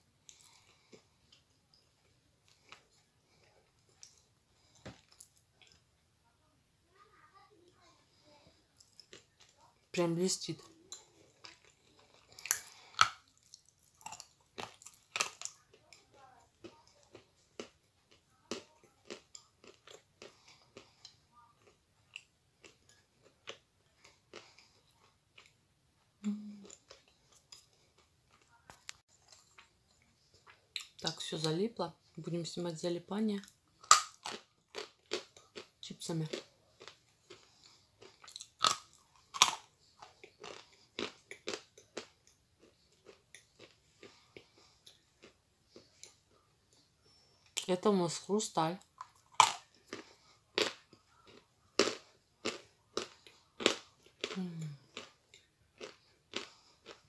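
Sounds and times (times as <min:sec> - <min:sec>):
chewing dry clay crunches: 0:10.9 - 0:25.6, 0:33.8 - 0:46.9, 0:49.0 - 0:57.0.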